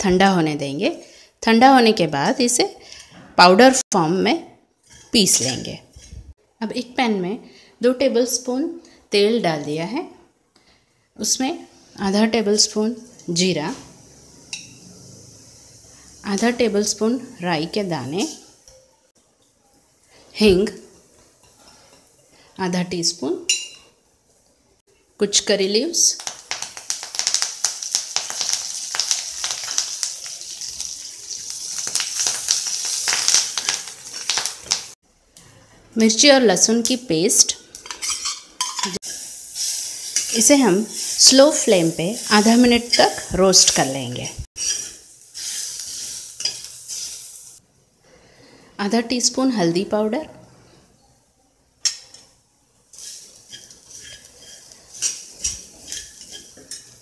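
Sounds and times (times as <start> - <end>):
spices sizzling in hot oil: 11.2 - 35.0, 36.1 - 47.6, 51.8 - 57.0
metal spatula stirring in pan: 14.0 - 16.6, 37.8 - 47.6, 51.8 - 57.0.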